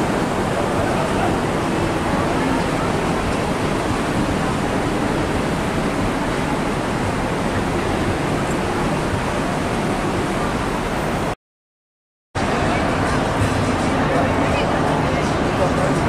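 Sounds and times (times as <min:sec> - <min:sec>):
wind buffeting microphone: 0:00.0 - 0:11.3.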